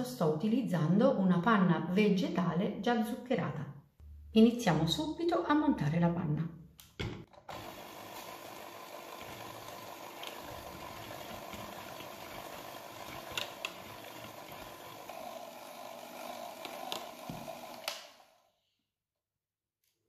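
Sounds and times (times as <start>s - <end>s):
electric hand mixer running: 7.3s - 18.5s
beaters whipping cream in bowl: 7.4s - 18.0s.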